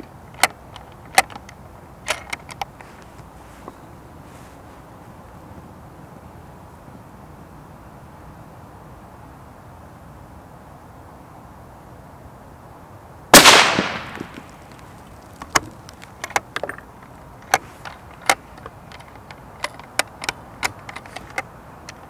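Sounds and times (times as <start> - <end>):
rifle bolt metallic clicks: 0.4 - 2.7, 17.4 - 22.0
rifle shot: 13.3 - 14.6.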